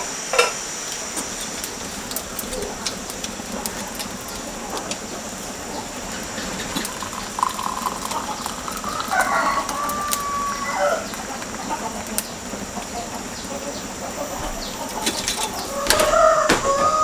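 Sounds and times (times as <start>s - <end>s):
wood fire crackling: 0.6s - 17.0s
tea pouring into ceramic cup: 6.0s - 11.5s.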